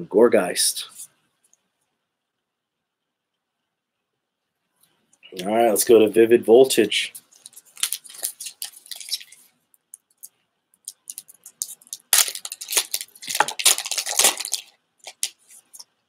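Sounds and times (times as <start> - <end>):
foil wrapper crinkling: 7.2 - 15.9
wrapper tearing open: 7.4 - 9.4, 10.9 - 15.8.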